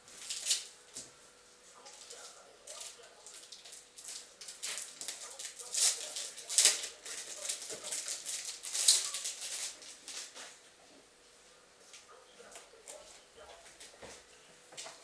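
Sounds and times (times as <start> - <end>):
plastic wrapping rustling: 0.0 - 0.7, 1.8 - 10.6.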